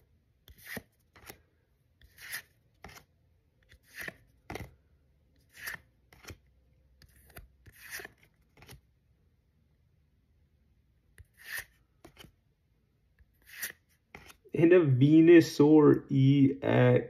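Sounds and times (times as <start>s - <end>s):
trading cards swishing: 3.7s - 4.7s, 5.5s - 6.4s, 7.1s - 8.8s, 11.2s - 12.3s, 13.4s - 14.4s.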